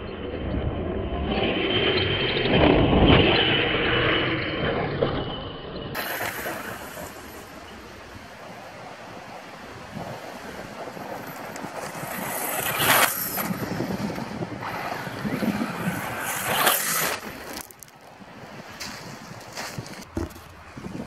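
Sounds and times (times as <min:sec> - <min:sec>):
electric rc truck driving: 0:00.0 - 0:21.0
tyres hissing on gravel: 0:06.0 - 0:13.9.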